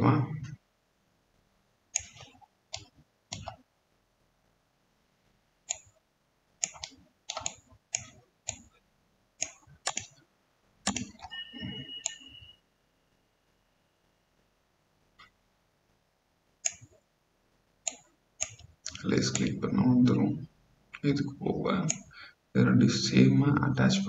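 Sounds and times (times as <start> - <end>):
computer mouse clicking: 1.9 - 3.6, 5.7 - 6.0, 6.6 - 8.7, 9.4 - 10.2, 10.8 - 11.3, 16.6 - 17.0, 17.8 - 19.6.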